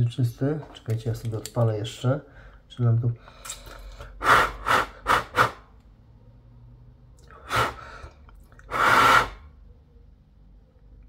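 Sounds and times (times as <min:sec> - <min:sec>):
person blowing puffs of breath: 0:03.3 - 0:05.7, 0:07.3 - 0:09.5.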